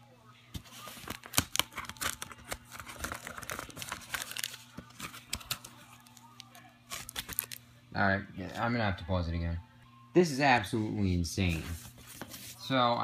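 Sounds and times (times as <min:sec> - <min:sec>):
packing tape peeling: 0:00.9 - 0:07.6.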